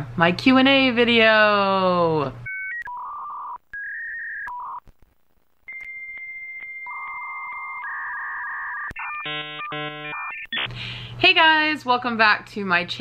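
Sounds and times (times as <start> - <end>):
buzzy electronic beeps with clicks: 5.6 - 10.7.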